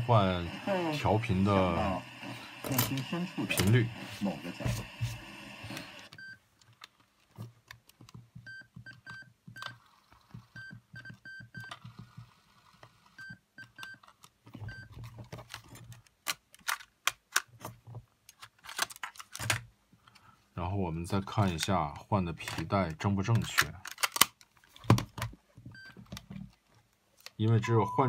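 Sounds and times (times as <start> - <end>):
plastic clicks and handling: 6.1 - 9.8, 13.6 - 20.3, 21.4 - 27.6
key-press beeps: 8.4 - 9.7, 10.6 - 11.8, 27.6 - 28.0.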